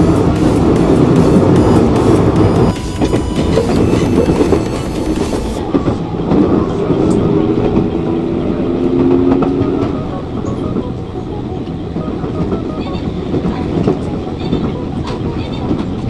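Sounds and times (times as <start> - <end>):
clicks and clatter over track: 0.0 - 8.1, 11.6 - 16.0
train wheels rumbling on rail: 0.0 - 16.0.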